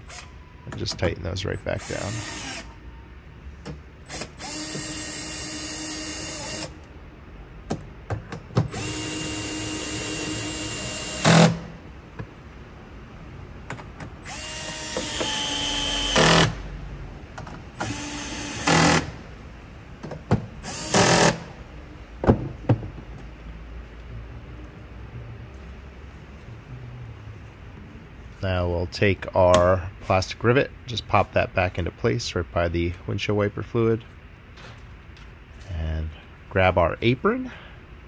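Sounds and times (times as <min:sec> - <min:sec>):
cordless drill motor whine: 0:02.0 - 0:02.7, 0:04.1 - 0:06.8, 0:08.7 - 0:11.5, 0:14.2 - 0:16.5
drill rattle: 0:04.1 - 0:06.8, 0:08.7 - 0:11.6, 0:14.2 - 0:16.6, 0:17.8 - 0:19.2, 0:20.6 - 0:21.5.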